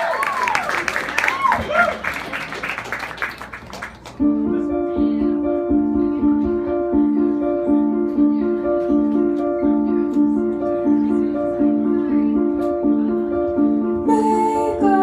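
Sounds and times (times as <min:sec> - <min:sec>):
audience clapping and cheering: 0:00.0 - 0:04.2
keyboard repeating riff: 0:04.2 - 0:15.0.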